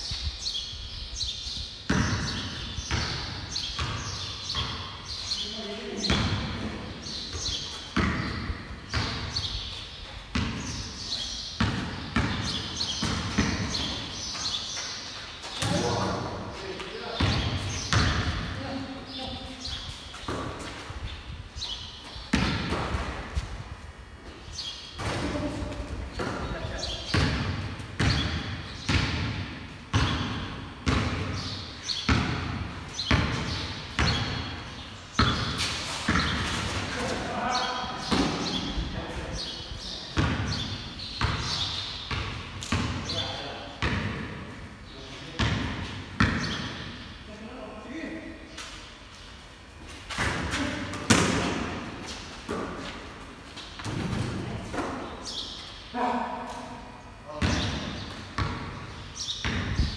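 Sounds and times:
basketball bouncing on concrete: 0:01.9 - 0:05.0, 0:05.9 - 0:09.5, 0:10.3 - 0:10.9, 0:11.6 - 0:14.5, 0:16.8 - 0:18.6, 0:20.2 - 0:20.8, 0:22.3 - 0:23.3, 0:25.0 - 0:34.6, 0:35.2 - 0:37.1, 0:38.0 - 0:38.8, 0:40.2 - 0:44.5, 0:45.3 - 0:47.0, 0:50.1 - 0:53.2, 0:57.4 - 0:59.9
basketball thudding: 0:07.3 - 0:09.4, 0:35.2 - 0:36.6, 0:50.1 - 0:51.9.

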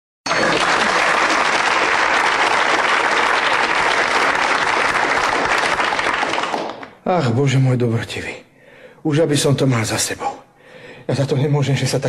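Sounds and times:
audience applause: 0:00.3 - 0:06.9.

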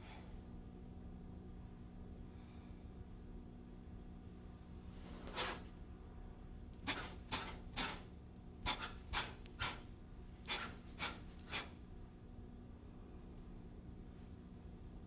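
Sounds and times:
sharp forceful exhales: 0:05.0 - 0:05.7, 0:06.8 - 0:08.1, 0:08.7 - 0:09.9, 0:10.5 - 0:11.8.

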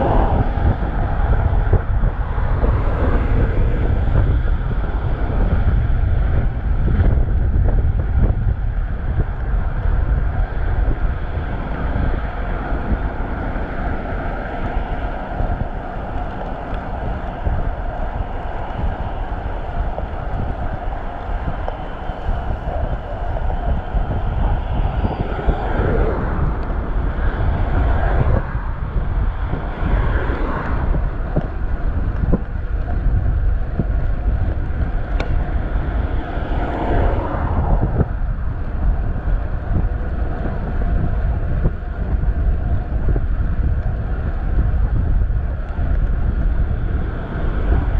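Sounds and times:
passing motor vehicles: 0:00.0 - 0:47.9
wind buffeting microphone: 0:00.0 - 0:47.9
road traffic hiss: 0:08.5 - 0:32.8.

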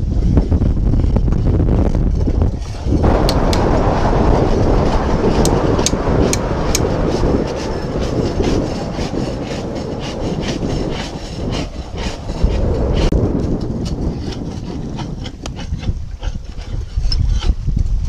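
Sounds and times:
rough scraping on hull: 0:06.3 - 0:18.0.

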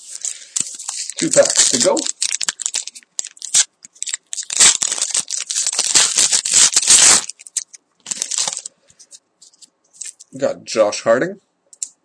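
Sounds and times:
wrapper tearing and crinkling: 0:00.0 - 0:08.7, 0:10.0 - 0:10.4.

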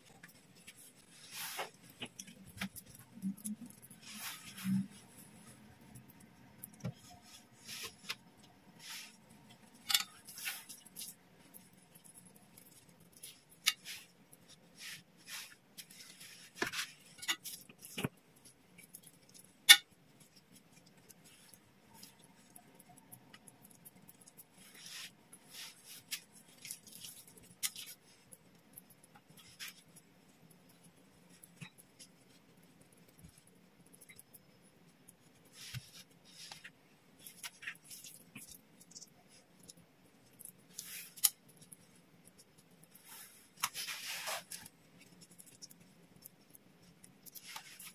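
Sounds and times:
dumpling wrappers rustling: 0:00.0 - 0:47.9.

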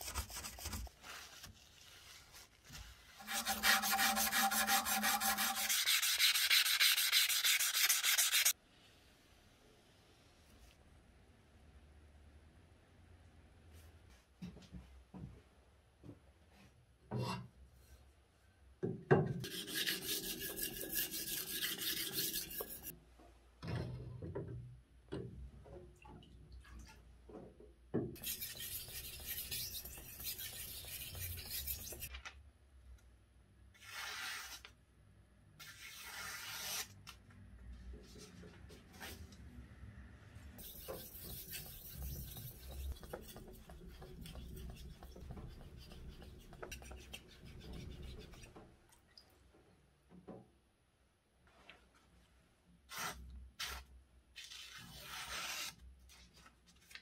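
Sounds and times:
scraping on wet whetstone: 0:03.2 - 0:08.5, 0:19.4 - 0:22.9, 0:28.2 - 0:32.1, 0:40.6 - 0:48.5
knife slicing paper: 0:35.6 - 0:36.9, 0:52.9 - 0:55.8.

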